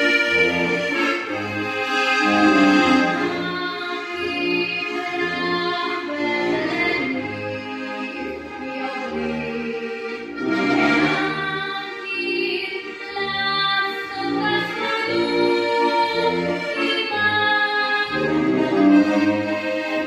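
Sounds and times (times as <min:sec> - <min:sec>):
accordions playing folk tune: 0:00.0 - 0:20.0
girl singing: 0:03.2 - 0:07.2, 0:11.3 - 0:18.2.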